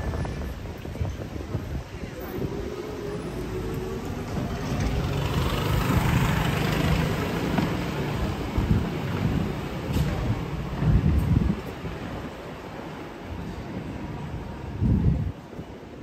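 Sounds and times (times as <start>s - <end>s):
street noise: 0.0s - 16.0s
scooter engine hum: 2.0s - 9.9s.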